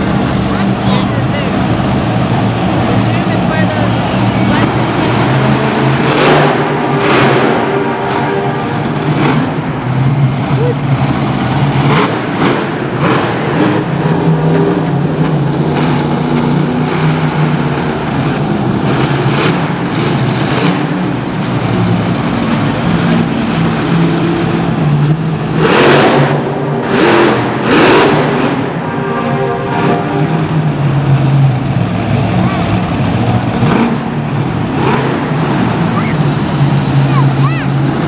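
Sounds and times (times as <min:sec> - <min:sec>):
monster truck engine revving: 0:00.0 - 0:38.0.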